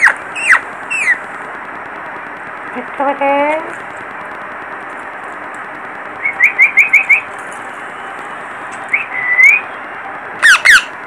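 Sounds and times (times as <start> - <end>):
parakeet screeches: 0.0 - 1.2, 10.4 - 11.0
parakeets chirping: 0.0 - 1.3, 6.2 - 9.8, 10.4 - 11.0.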